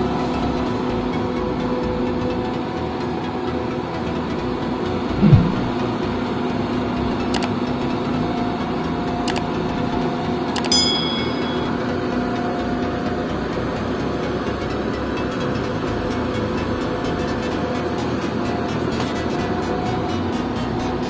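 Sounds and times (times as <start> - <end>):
steady low drone: 4.2 - 6.3
falling boom: 5.1 - 5.8
short bell chime: 10.6 - 12.1.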